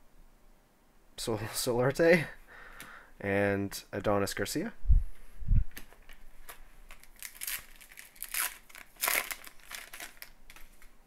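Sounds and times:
foil wrapper crinkling and tearing: 0:06.9 - 0:10.9.

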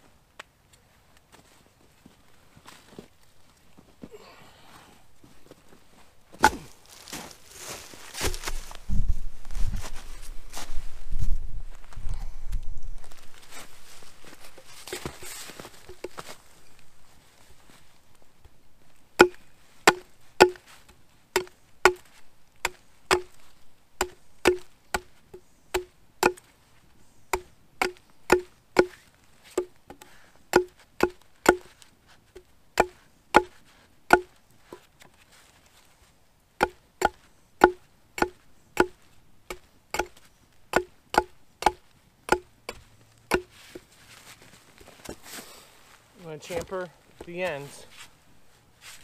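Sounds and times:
hatchet knocking on wooden pole: 0:19.2 - 0:20.6, 0:21.4 - 0:22.0, 0:27.4 - 0:29.0, 0:30.5 - 0:31.7, 0:36.6 - 0:43.5.

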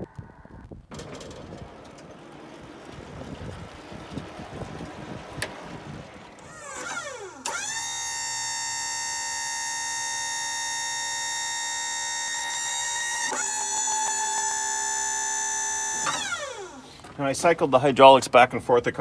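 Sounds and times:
hydraulic pump whining: 0:00.0 - 0:17.2.

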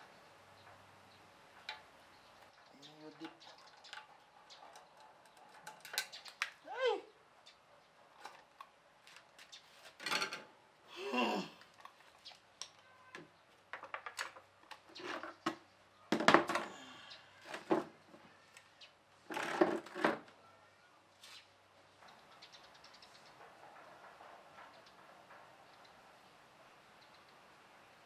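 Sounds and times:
electric fan parts clattering: 0:01.5 - 0:06.6, 0:08.2 - 0:10.6.

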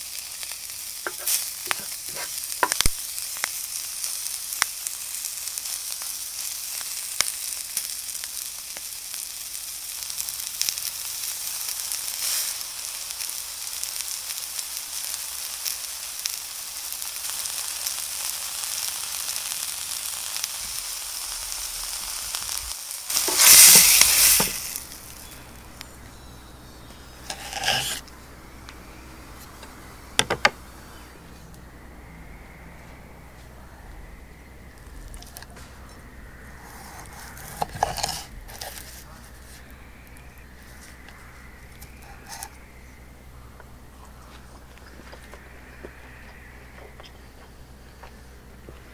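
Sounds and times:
steak sizzling in frying pan: 0:00.0 - 0:26.0, 0:26.9 - 0:28.0, 0:36.6 - 0:40.4.

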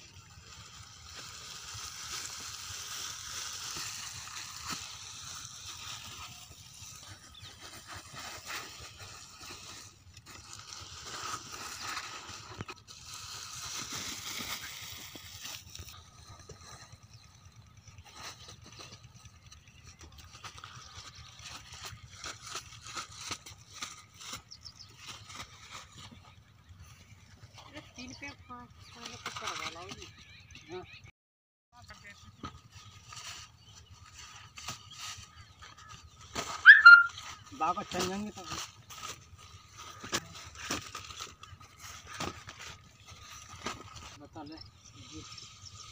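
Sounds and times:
plastic pipe rustling over sand: 0:00.0 - 0:16.0.

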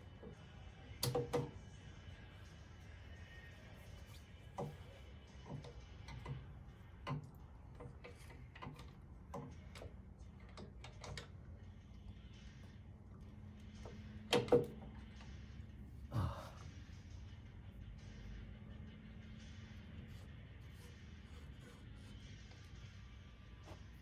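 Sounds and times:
hand tools clicking and tapping: 0:01.0 - 0:01.6, 0:05.4 - 0:11.3, 0:13.7 - 0:15.0.

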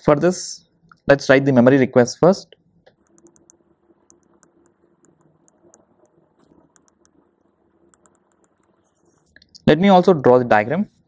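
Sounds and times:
stylus tapping on a tablet: 0:02.9 - 0:08.9.

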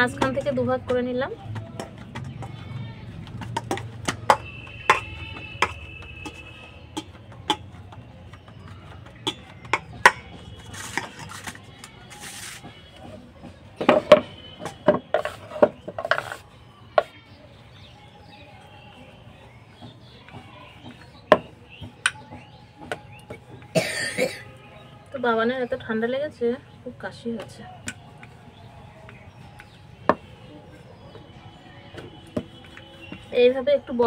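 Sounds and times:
hands and bangles knocking steel bowl: 0:03.3 - 0:11.3.

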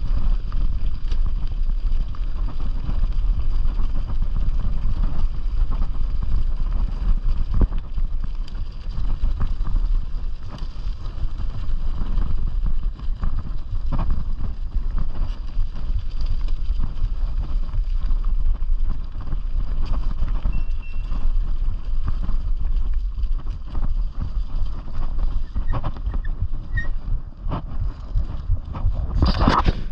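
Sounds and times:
bicycle tyres rolling on dirt: 0:00.0 - 0:29.9
wind buffeting microphone: 0:00.0 - 0:29.9.

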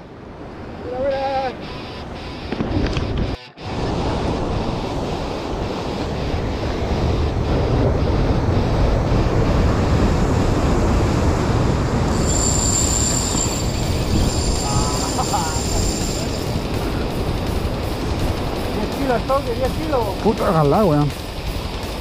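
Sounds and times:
wind rumbling on microphone: 0:00.0 - 0:22.0
surf breaking on rocks: 0:03.6 - 0:22.0
high thin whine: 0:12.0 - 0:22.0.

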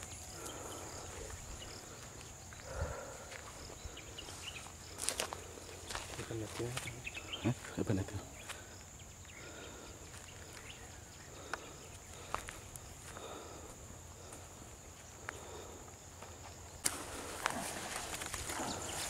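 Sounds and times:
sharp crack: 0:16.8 - 0:18.6.

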